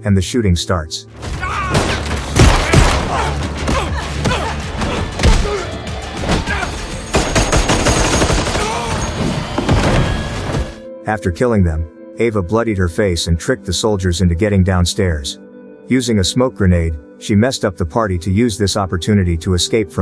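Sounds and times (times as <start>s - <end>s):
gunshots: 1.7s - 5.5s, 6.4s - 10.8s.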